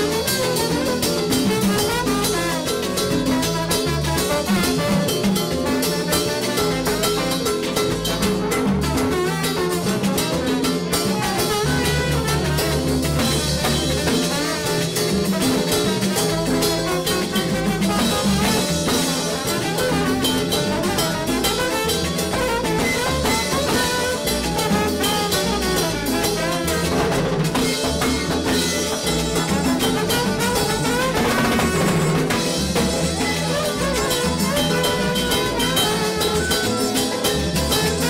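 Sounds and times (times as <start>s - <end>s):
live salsa band playing: 0.0s - 38.0s.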